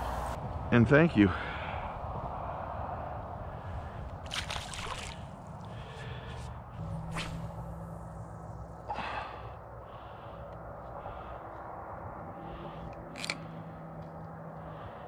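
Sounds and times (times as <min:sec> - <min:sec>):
lure splashing into water: 0:04.3 - 0:05.2
water splashing: 0:04.3 - 0:05.3
fishing rod cast swish: 0:06.9 - 0:07.8.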